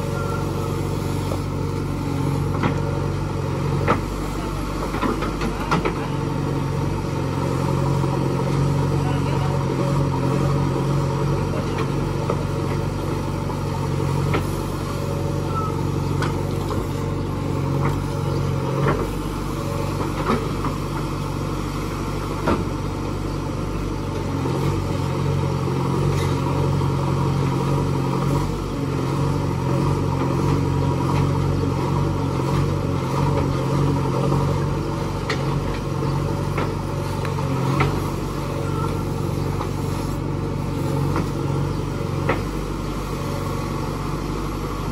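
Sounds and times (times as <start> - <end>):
diesel engine running under load: 0.0 - 44.9.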